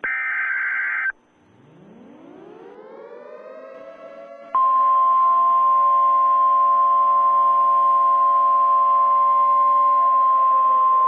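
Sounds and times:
siren holding steady pitch: 1.6s - 9.0s.

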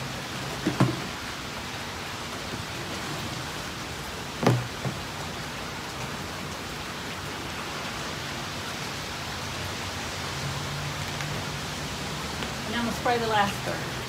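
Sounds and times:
steady rain hiss: 0.0s - 14.0s
short thumps: 4.4s - 5.0s.

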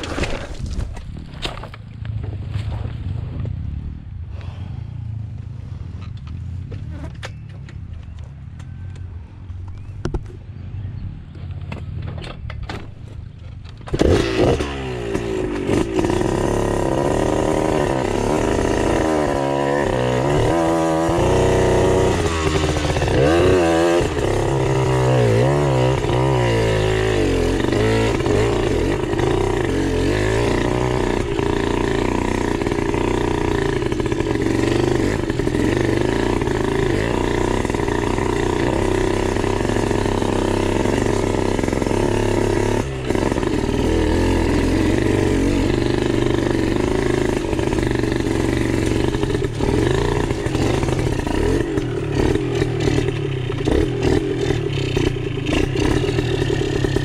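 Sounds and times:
dirt bike engine revving: 13.8s - 57.0s.

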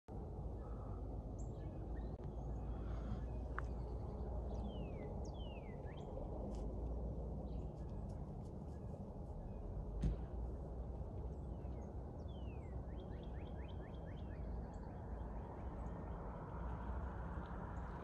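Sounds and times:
steady low rumble: 0.1s - 18.0s
small birds chirping: 11.2s - 18.0s.

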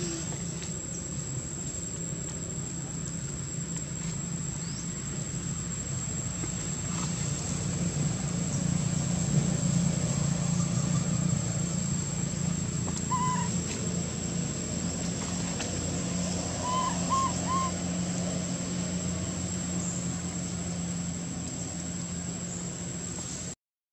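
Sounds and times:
steady low hum: 0.0s - 23.6s
short arched animal calls: 13.0s - 13.8s, 16.6s - 17.8s.

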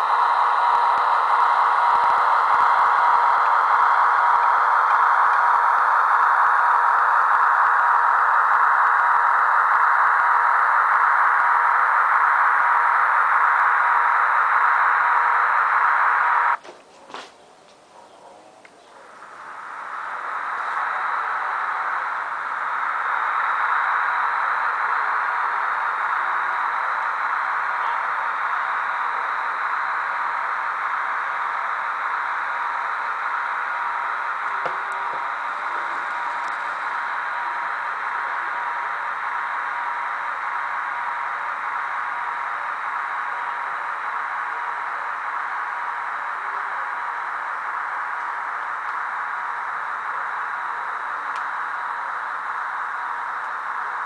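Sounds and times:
model train whirring on rails: 0.0s - 17.2s, 18.9s - 54.0s
faint clicks: 51.2s - 51.7s.

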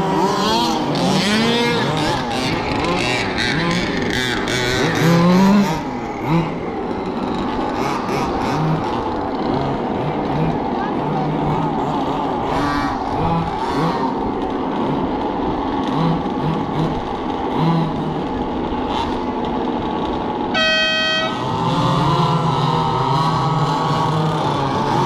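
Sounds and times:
radio-controlled car motors racing: 0.0s - 25.0s
loud horn-like tone: 20.5s - 21.8s.

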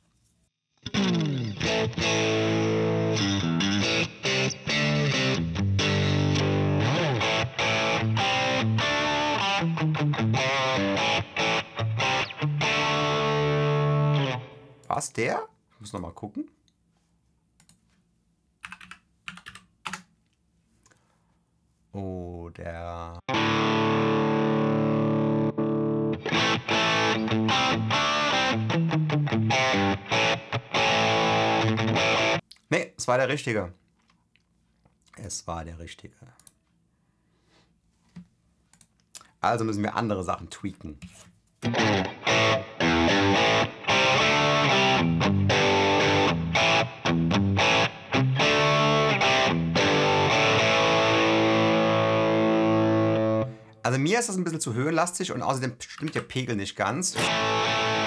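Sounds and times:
distorted electric guitar: 0.8s - 14.9s, 23.3s - 32.4s, 41.6s - 53.8s, 57.2s - 58.0s.

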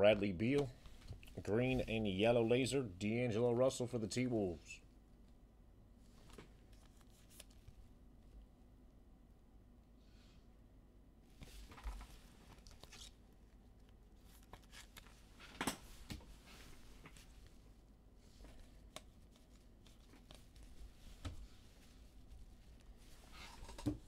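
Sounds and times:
cards rustling and clicking: 6.2s - 7.8s, 11.5s - 16.3s, 18.3s - 24.0s.

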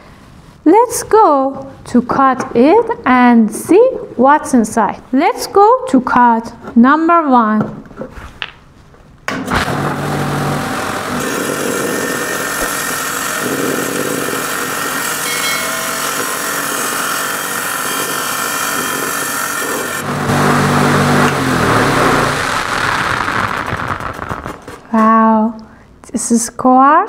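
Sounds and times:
stone saw grinding whine: 9.8s - 23.6s.

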